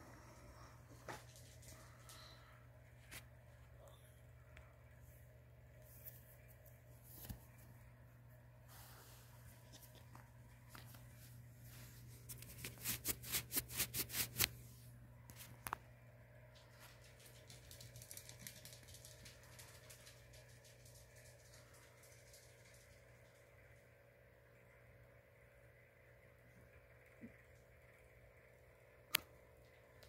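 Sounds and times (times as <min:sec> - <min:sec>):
scratchy rustling strokes: 0:08.6 - 0:15.6.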